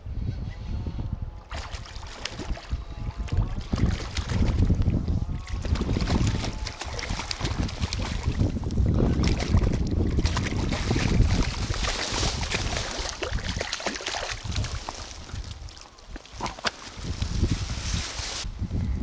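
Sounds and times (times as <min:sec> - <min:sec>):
wind rumble on microphone: 0:00.0 - 0:19.0
fish splashing at water surface: 0:01.5 - 0:04.7, 0:05.4 - 0:16.8.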